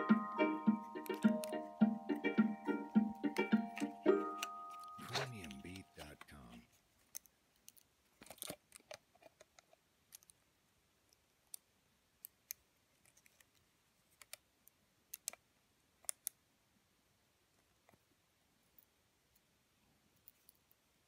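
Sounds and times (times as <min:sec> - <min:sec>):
plastic and metal parts clicking: 0:07.0 - 0:10.4, 0:15.1 - 0:15.4.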